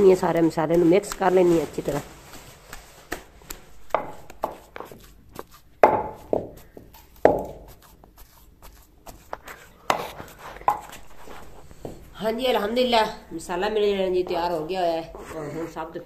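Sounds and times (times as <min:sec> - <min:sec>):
pestle pounding in clay mortar: 0:02.2 - 0:11.2.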